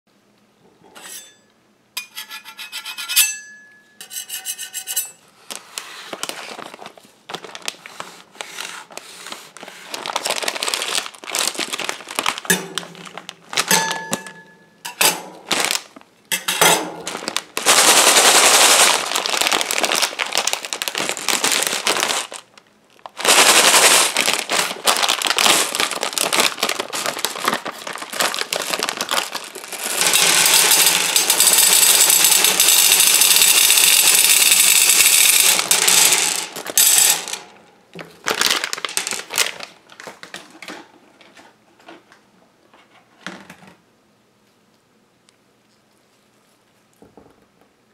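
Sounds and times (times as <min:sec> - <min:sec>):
steel scrapers clinking on metal pan: 0:00.9 - 0:05.2
plastic bag crinkling: 0:05.4 - 0:14.4, 0:15.4 - 0:16.2, 0:17.0 - 0:42.0.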